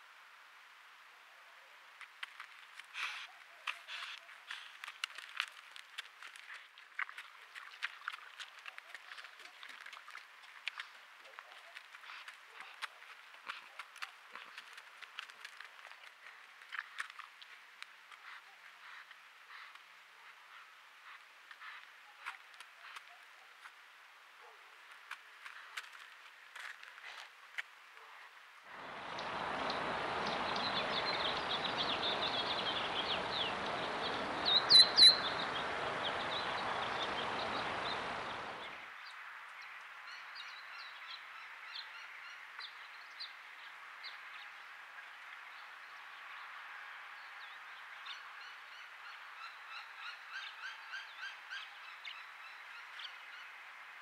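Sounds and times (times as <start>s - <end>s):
steady rushing noise: 28.7s - 38.8s
birds chirping: 28.7s - 41.2s
loud sharp bird notes: 29.0s - 38.7s.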